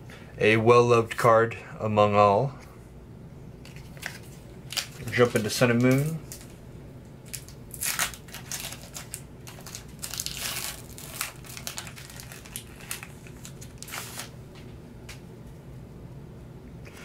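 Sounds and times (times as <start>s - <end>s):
foil wrapper crinkling: 3.6s - 6.6s, 7.2s - 14.4s.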